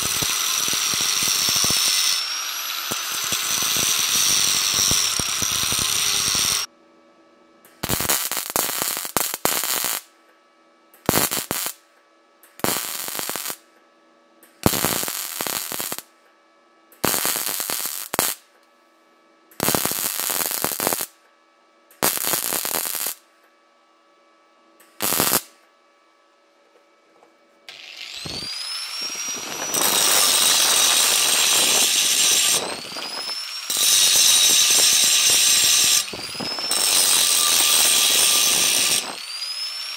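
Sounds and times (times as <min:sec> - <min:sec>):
angle grinder grinding steel: 0:00.0 - 0:06.7, 0:27.7 - 0:39.9
arc welding crackle: 0:00.0 - 0:06.7, 0:07.8 - 0:10.1, 0:11.0 - 0:11.8, 0:12.5 - 0:13.6, 0:14.6 - 0:16.1, 0:17.0 - 0:18.5, 0:19.6 - 0:21.2, 0:22.0 - 0:23.2, 0:25.0 - 0:25.6, 0:27.7 - 0:39.9.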